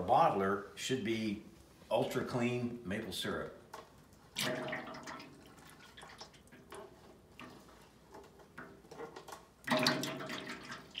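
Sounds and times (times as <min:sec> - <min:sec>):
small drips and splashes: 0:03.8 - 0:11.0.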